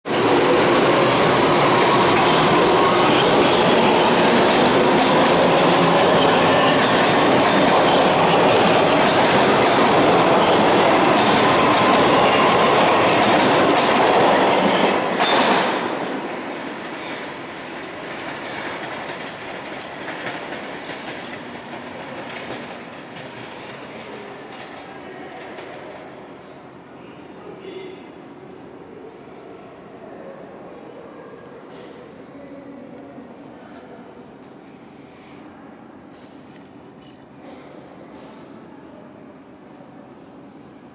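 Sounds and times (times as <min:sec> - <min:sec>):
subway train roaring past: 0:00.0 - 0:40.9
wheels clacking over rail joints: 0:04.1 - 0:15.8.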